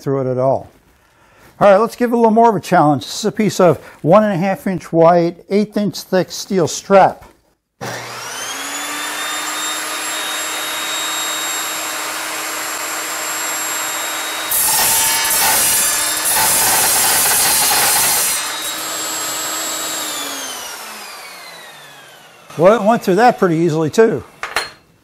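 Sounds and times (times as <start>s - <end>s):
saw blade cutting steel: 7.8s - 21.7s
saw blade whine spinning free: 7.8s - 22.8s.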